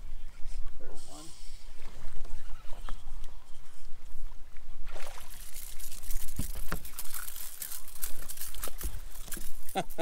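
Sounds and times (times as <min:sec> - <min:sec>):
water lapping against boat hull: 0:01.6 - 0:10.0.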